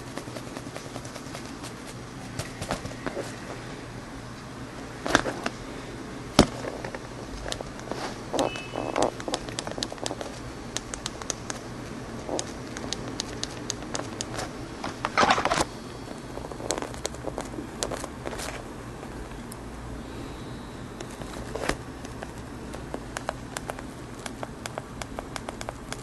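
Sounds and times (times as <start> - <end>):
phone handling rustle: 6.4 - 19.5, 21.0 - 23.9.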